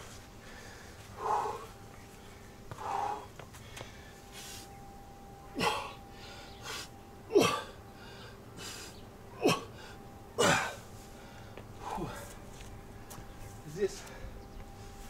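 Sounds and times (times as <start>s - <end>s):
soft breaths: 0.0s - 7.1s, 7.8s - 9.1s, 9.7s - 15.0s.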